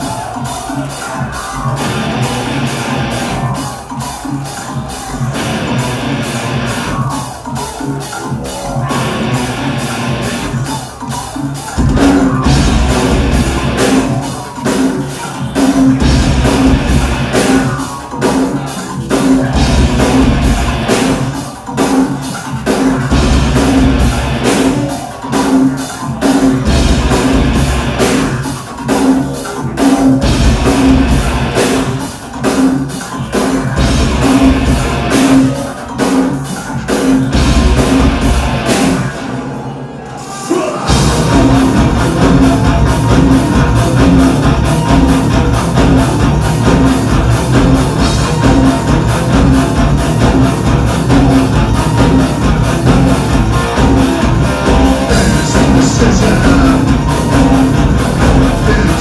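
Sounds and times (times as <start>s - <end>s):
drum kit beat: 0.0s - 39.3s, 40.2s - 59.0s
distorted electric guitar: 0.0s - 39.6s, 40.7s - 59.0s
heavy bass pulses: 11.8s - 14.2s, 19.2s - 21.4s, 33.6s - 35.6s, 40.9s - 59.0s.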